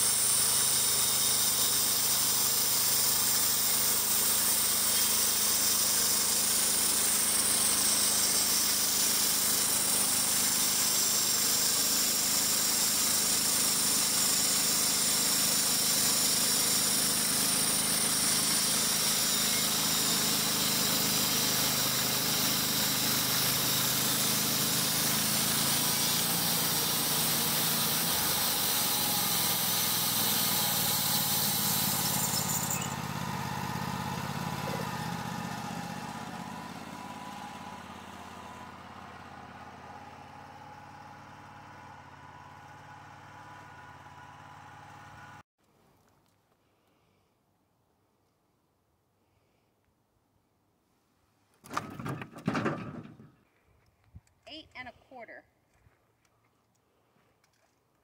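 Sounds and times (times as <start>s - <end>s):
band blade cutting log hiss: 0.0s - 35.1s
band sawmill engine hum: 0.0s - 45.4s.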